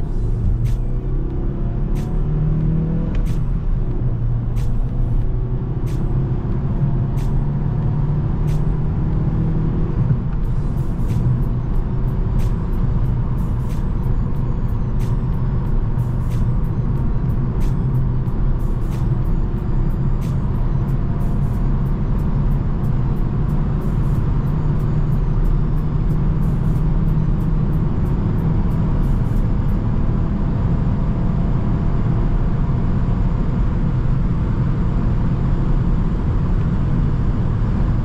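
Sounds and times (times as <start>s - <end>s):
car engine droning: 0.0s - 38.0s
road noise: 0.0s - 38.0s.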